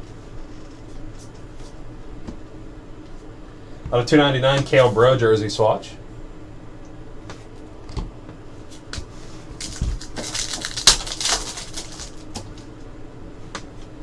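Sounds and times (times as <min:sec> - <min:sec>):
foil wrapper tearing and crackling: 0:09.5 - 0:12.7
cards clicking and thumping: 0:09.6 - 0:12.6.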